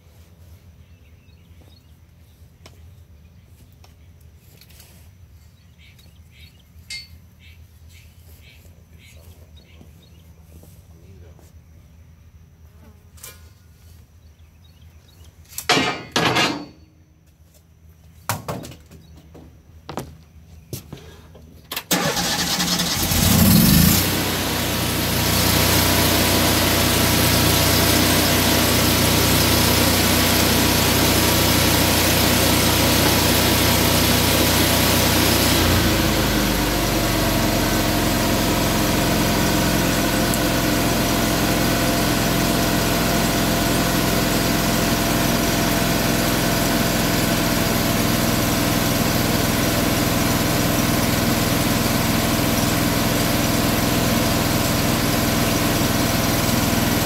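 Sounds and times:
engine starting and running: 21.2s - 57.0s.

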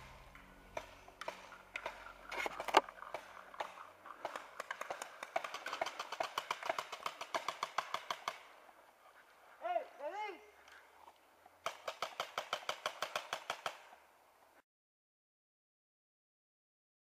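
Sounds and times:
paintball markers firing: 0.7s - 8.5s, 11.6s - 13.9s.

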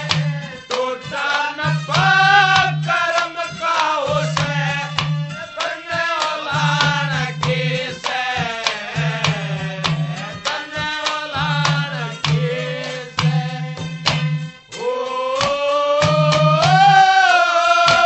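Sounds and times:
hand drum rhythm: 0.0s - 18.0s.

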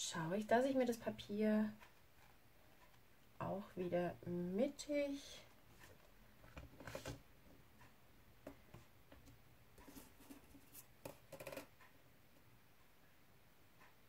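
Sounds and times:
card paper rustling and sliding: 6.8s - 7.2s.

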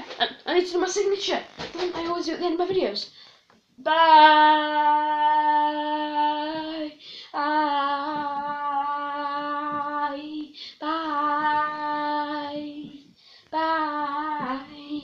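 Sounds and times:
boy singing long held notes: 3.8s - 15.0s.

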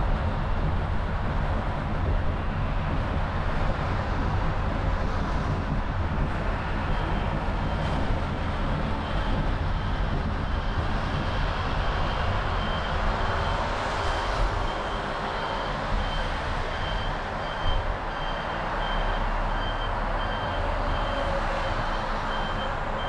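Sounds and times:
passing traffic: 0.0s - 23.0s
faint high beep: 12.6s - 23.0s.

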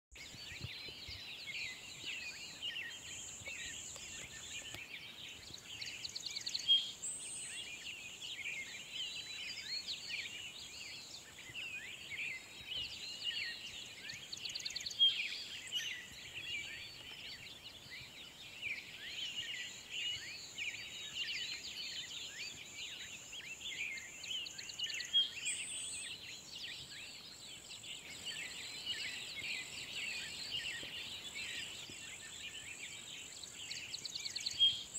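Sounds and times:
songbirds chirping: 0.1s - 34.9s.

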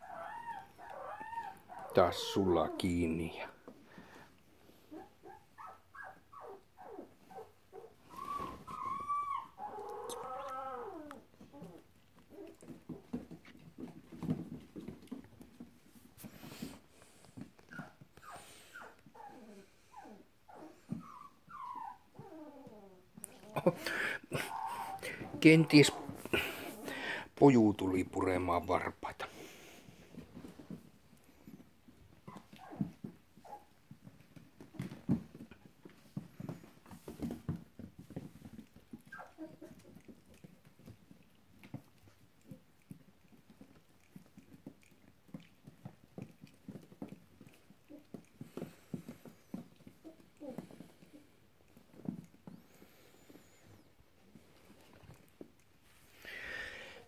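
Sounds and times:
puppies yipping and whining: 0.0s - 2.8s, 4.9s - 13.3s, 17.6s - 27.1s, 31.5s - 35.0s, 38.1s - 40.4s
puppies scrambling on wooden floor: 0.0s - 2.9s, 5.6s - 19.5s, 20.5s - 27.8s, 29.2s - 56.7s
puppy squeak: 8.1s - 11.1s.

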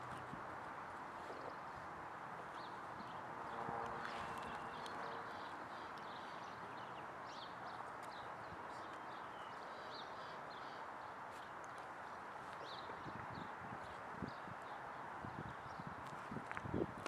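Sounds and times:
small birds chirping: 2.5s - 16.0s.

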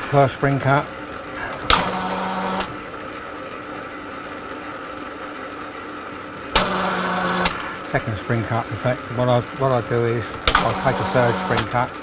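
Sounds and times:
lathe machine hum: 0.0s - 12.0s
sharp click: 10.4s - 10.8s.

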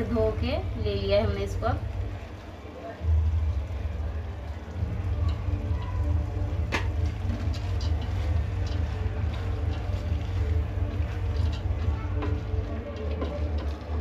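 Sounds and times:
wooden spoon stirring lentils in pot: 0.0s - 14.0s.

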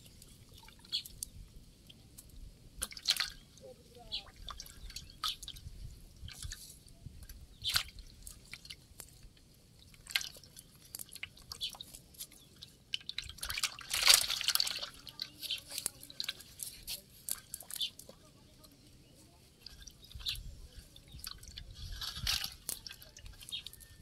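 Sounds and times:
wet fishing net handled: 4.4s - 24.0s
fish splashing in metal bowl: 12.8s - 16.6s.

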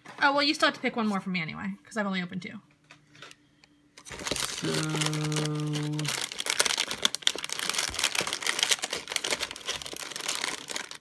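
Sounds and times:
plastic packets crinkling: 4.0s - 11.0s.

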